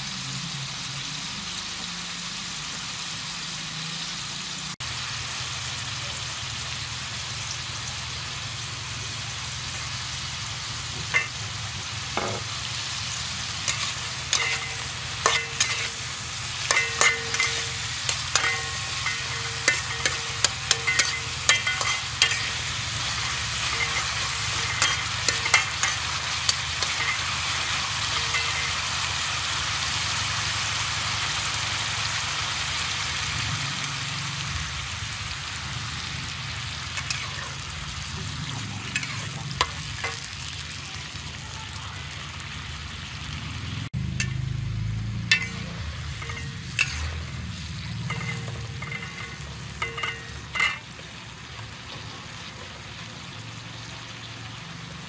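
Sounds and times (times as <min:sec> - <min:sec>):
meat sizzling in a wok: 0:00.0 - 0:55.0
metal clinking against a wok: 0:11.0 - 0:11.6, 0:13.6 - 0:29.2, 0:36.9 - 0:40.7, 0:44.0 - 0:53.1
metal spatula scraping a wok: 0:11.0 - 0:29.1, 0:36.9 - 0:40.6, 0:45.3 - 0:51.2.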